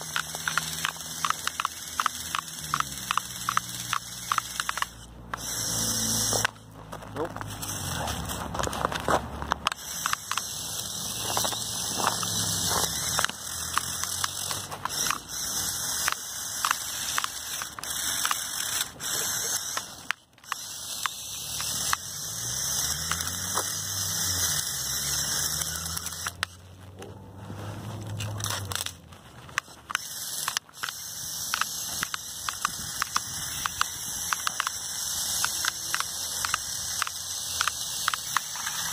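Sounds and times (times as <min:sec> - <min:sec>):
toy motors and gears whining: 0:00.0 - 0:38.9
plastic tracks crunching through snow: 0:06.2 - 0:15.8, 0:24.8 - 0:34.8.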